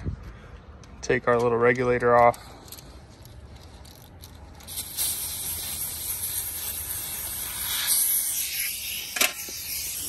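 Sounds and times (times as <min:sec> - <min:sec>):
gas hissing from hose fitting: 0:04.6 - 0:10.0.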